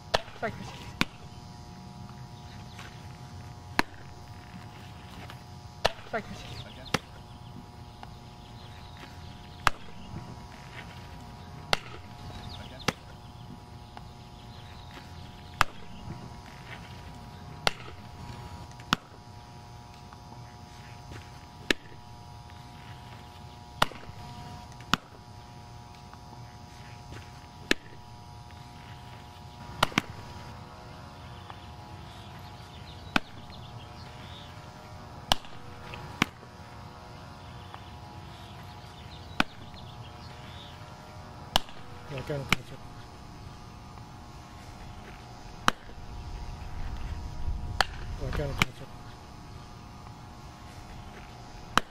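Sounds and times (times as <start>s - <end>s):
ball smacking into leather mitt: 29.8s - 30.2s.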